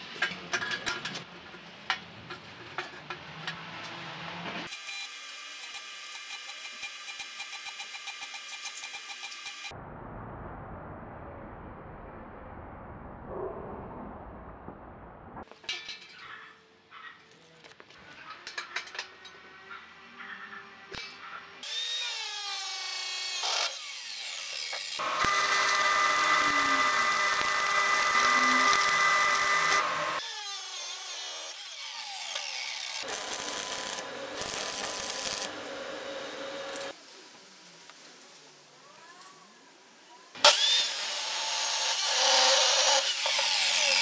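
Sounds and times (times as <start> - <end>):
power tool motor whining: 21.6 - 36.9.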